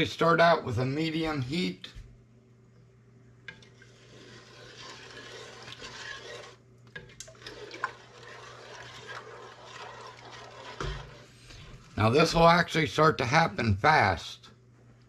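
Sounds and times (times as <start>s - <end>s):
spoon stirring liquid in pot: 3.4s - 12.7s.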